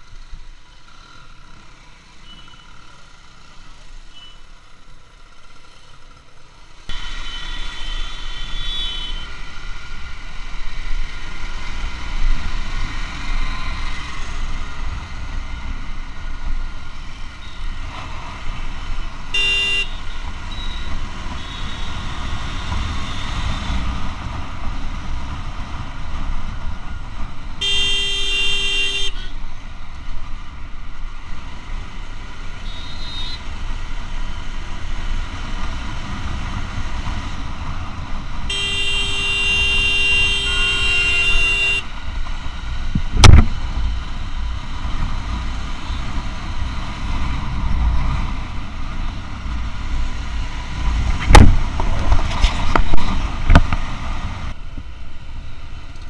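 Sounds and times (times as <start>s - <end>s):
wind and road noise: 0.0s - 56.0s
vehicle horn honking: 4.1s - 4.4s, 7.2s - 9.3s, 19.3s - 22.0s, 27.6s - 29.3s, 32.6s - 33.4s, 38.5s - 41.9s.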